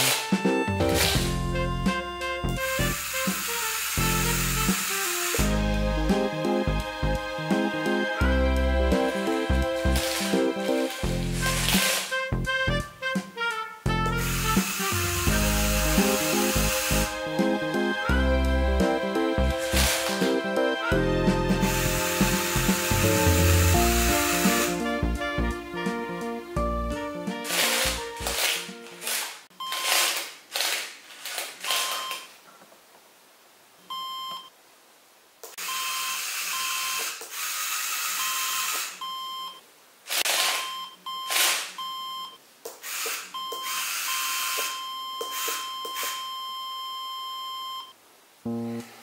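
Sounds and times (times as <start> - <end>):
small motors whirring: 2.8 - 5.5, 21.6 - 24.8, 35.9 - 39.0, 42.8 - 46.2
electronic buzzer beeping: 21.6 - 24.8, 35.6 - 39.6, 40.5 - 42.4, 43.4 - 47.9.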